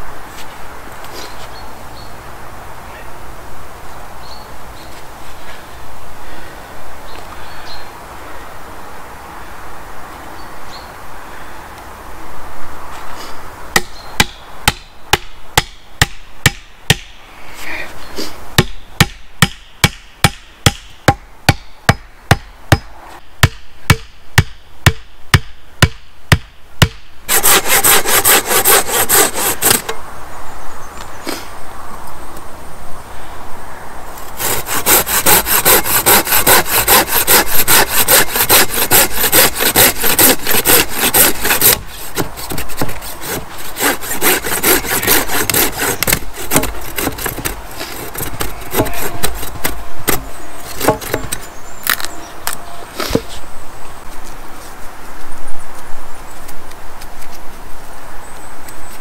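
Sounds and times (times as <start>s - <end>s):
axe striking wooden stake: 13.8s - 17.2s, 18.6s - 28.8s, 29.4s - 30.0s, 44.1s - 52.1s
hand saw cutting wood: 27.3s - 30.0s, 34.2s - 51.5s.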